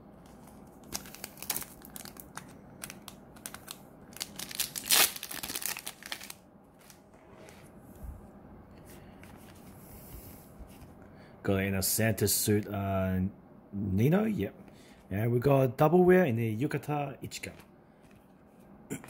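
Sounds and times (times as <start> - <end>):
foil wrapper crinkling: 0.3 - 7.0
foil wrapper ripping: 0.8 - 7.0.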